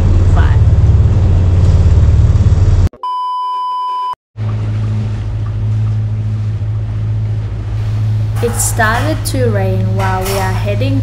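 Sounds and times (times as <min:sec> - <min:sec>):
boat motor drone: 0:00.0 - 0:02.9, 0:04.4 - 0:11.0
censor bleep tone: 0:03.0 - 0:04.2.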